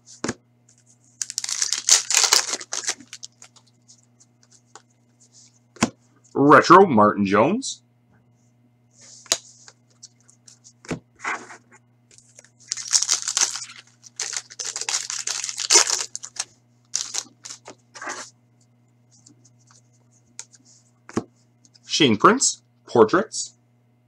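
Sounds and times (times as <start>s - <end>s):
wrapper tearing and crinkling: 1.2s - 3.6s, 12.4s - 17.8s.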